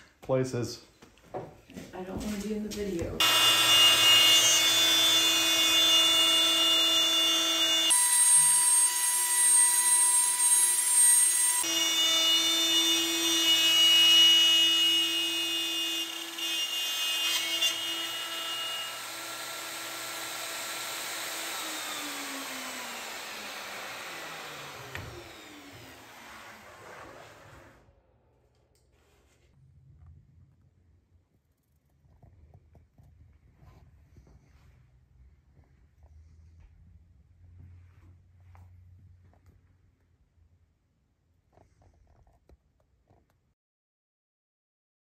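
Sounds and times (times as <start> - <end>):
router whining: 3.2 - 27.8.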